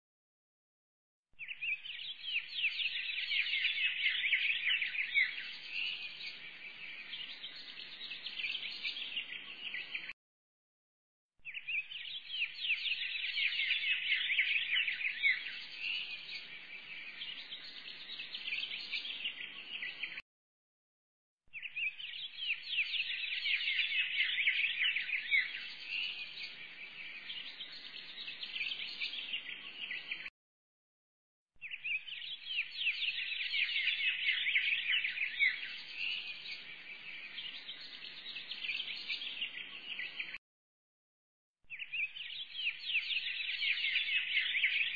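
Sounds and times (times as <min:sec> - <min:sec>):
small birds chirping: 0:01.4 - 0:10.1, 0:11.4 - 0:20.2, 0:21.5 - 0:30.3, 0:31.6 - 0:40.4, 0:41.7 - 0:44.9.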